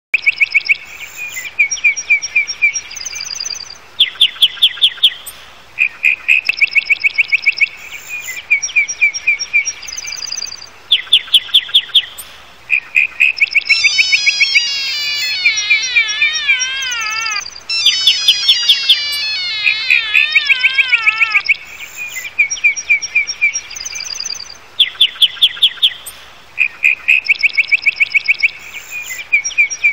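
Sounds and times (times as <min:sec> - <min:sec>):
phone alarm chirps and beeps: 0:13.7 - 0:21.4.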